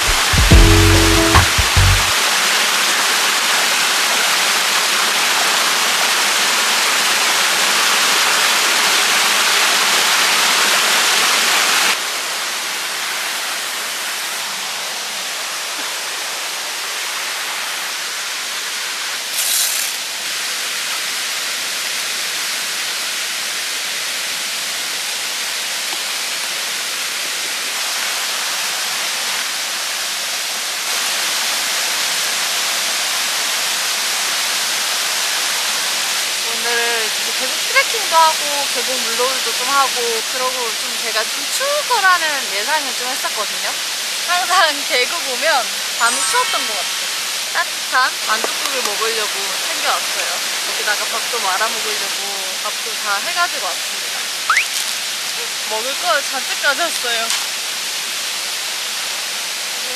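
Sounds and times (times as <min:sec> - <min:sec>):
mountain stream rushing: 0:00.0 - 0:59.9
short high hiss: 0:19.3 - 0:20.0.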